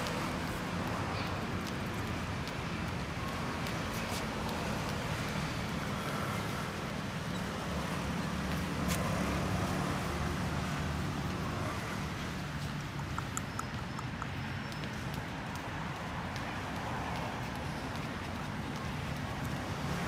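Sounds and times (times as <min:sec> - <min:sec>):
road traffic rumble: 0:00.0 - 0:20.0
faint clicks: 0:12.6 - 0:20.0.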